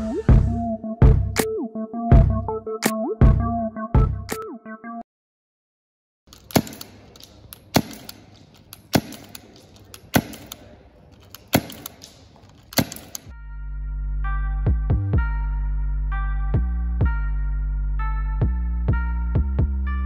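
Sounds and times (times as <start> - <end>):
keyboard music: 0.0 - 5.1, 13.4 - 20.0
suppressed airsoft pistol shots: 6.3 - 13.3.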